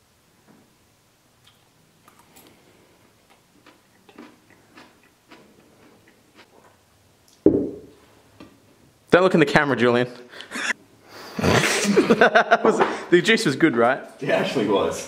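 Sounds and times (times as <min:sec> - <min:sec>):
loud thump: 0:07.5 - 0:07.9.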